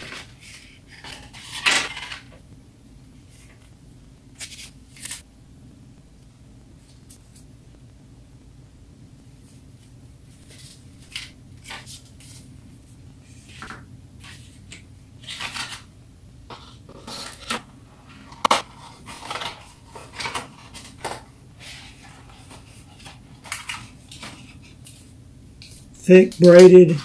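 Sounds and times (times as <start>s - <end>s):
packaging rustling: 16.5s - 25.1s.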